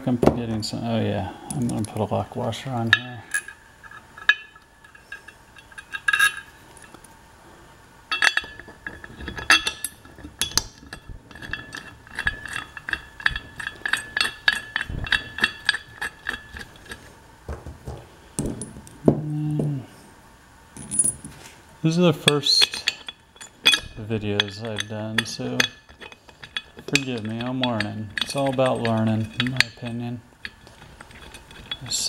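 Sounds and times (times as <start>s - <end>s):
metal bolt clinking: 2.9s - 7.1s, 8.1s - 19.0s, 20.8s - 21.4s, 22.2s - 32.0s.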